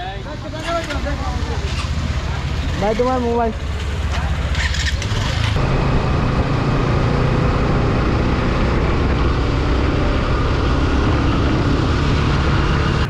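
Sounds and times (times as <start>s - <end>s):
motorcycle engine drone: 0.0s - 13.0s
wind and road noise: 0.0s - 13.0s.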